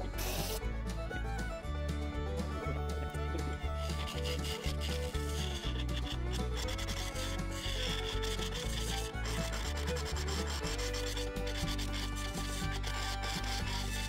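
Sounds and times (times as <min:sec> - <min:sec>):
lathe tool scraping wood: 0:03.3 - 0:14.0.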